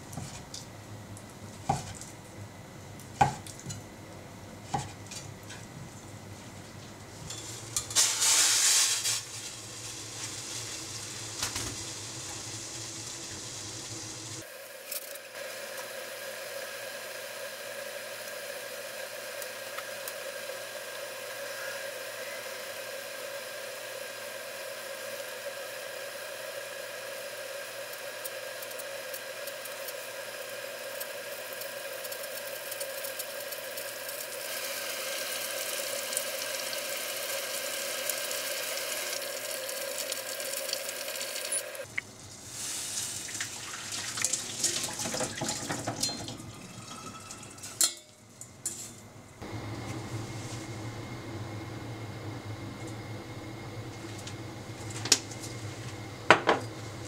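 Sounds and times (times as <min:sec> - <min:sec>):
water hissing as it heats: 0:07.3 - 0:48.8.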